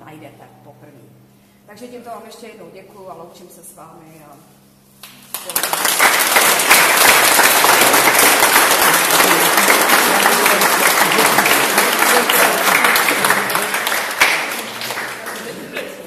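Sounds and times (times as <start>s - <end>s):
crowd applauding: 5.3s - 16.0s.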